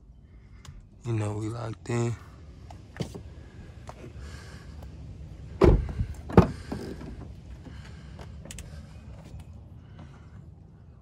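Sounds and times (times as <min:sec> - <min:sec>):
car doors clunking: 0:05.5 - 0:07.8.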